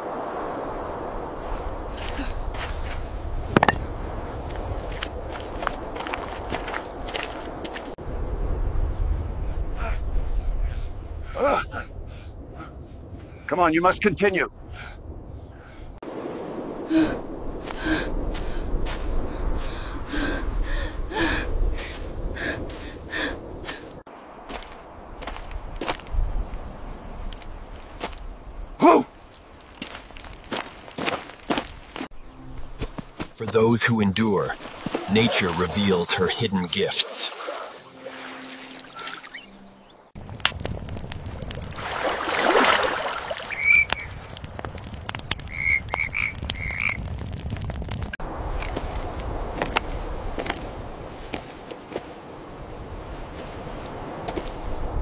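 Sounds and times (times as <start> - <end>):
woman panting heavily: 19.5 - 24.0
campfire crackling and popping: 29.3 - 32.0, 40.2 - 50.1
water splashing: 34.4 - 45.8
high chirping calls: 38.6 - 40.1.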